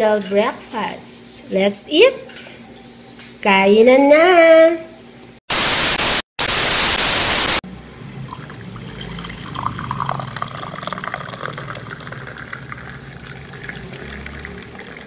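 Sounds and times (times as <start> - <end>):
loud static hiss: 5.5 - 7.6
water running and splashing: 9.0 - 15.0.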